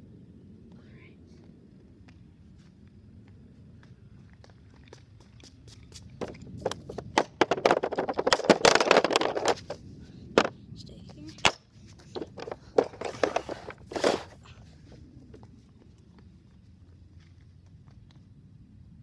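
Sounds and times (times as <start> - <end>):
hockey pucks clacking on plastic: 6.2 - 9.8.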